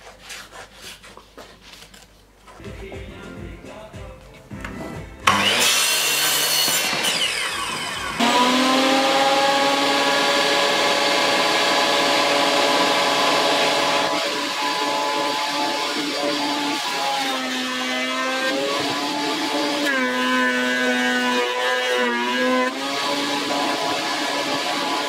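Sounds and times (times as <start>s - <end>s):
mitre saw cutting wood: 5.2s - 25.0s
planer motor whining: 5.2s - 25.0s.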